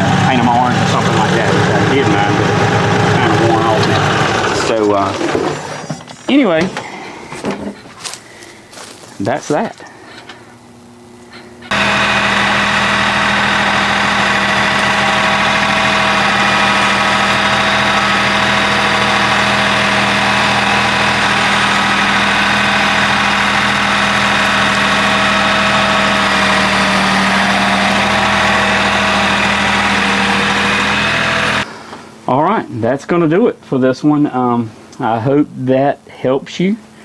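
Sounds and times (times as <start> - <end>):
tractor diesel engine idling: 0.0 - 5.5, 11.7 - 31.7.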